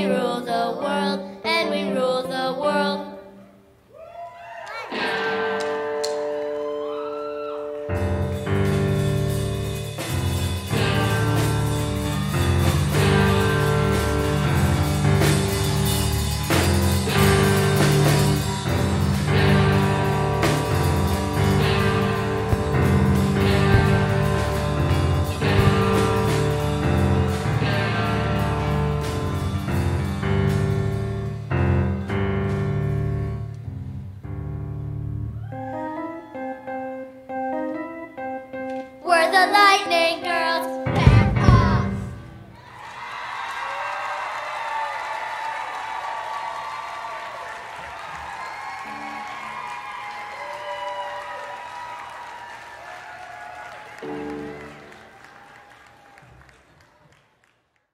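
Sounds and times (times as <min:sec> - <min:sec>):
electric guitar chords: 0:04.9 - 0:06.6, 0:07.6 - 0:42.5, 0:54.0 - 0:55.0
steady drum beat: 0:08.6 - 0:30.8, 0:40.9 - 0:42.4
keyboard repeated notes: 0:35.8 - 0:42.4.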